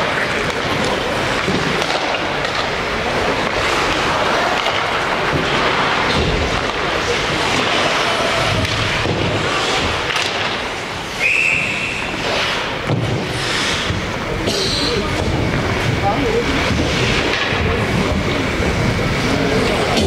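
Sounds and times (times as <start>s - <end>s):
arena crowd din: 0.0s - 20.0s
skates and sticks on ice: 0.0s - 20.0s
referee's whistle blast: 11.2s - 12.2s.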